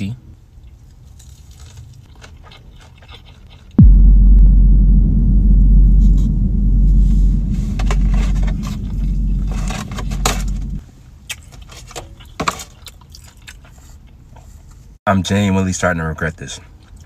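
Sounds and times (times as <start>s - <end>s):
food packaging clicks and scrapes: 1.0s - 3.8s, 11.3s - 14.8s
loud deep rumble: 3.8s - 10.8s.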